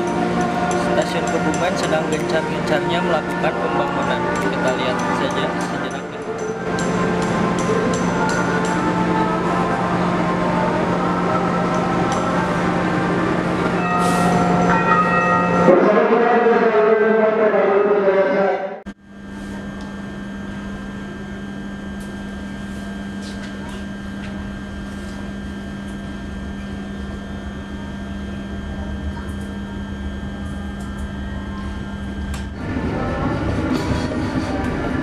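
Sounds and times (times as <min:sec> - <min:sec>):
air conditioning hum: 0:00.0 - 0:16.3, 0:18.9 - 0:35.0
moving train rumble: 0:28.7 - 0:35.0.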